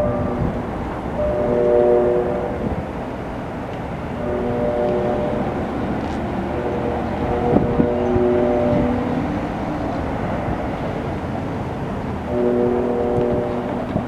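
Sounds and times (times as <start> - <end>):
train air horn chord: 0.0 - 0.6, 1.2 - 2.9, 4.1 - 9.8, 12.2 - 14.0
wind rumble on microphone: 0.0 - 14.0.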